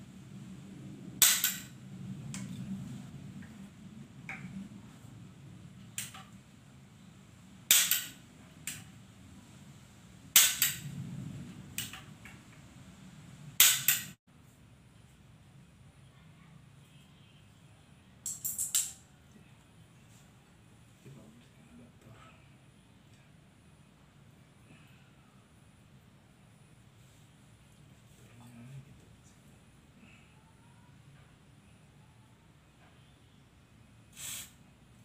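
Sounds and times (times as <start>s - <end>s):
blowpipe puff of air: 34.1s - 34.6s.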